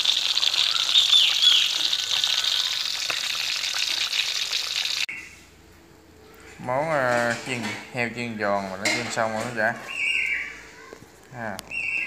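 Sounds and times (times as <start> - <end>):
meat deep-frying in oil: 0.0 - 5.1.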